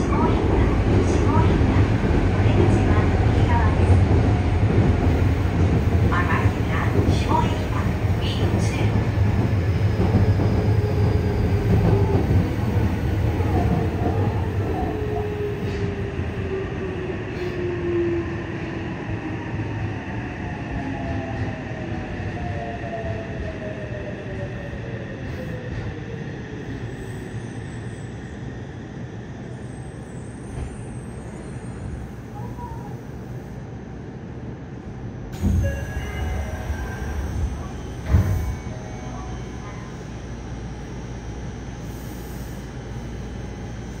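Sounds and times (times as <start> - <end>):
train inverter whine: 21.2 - 44.0.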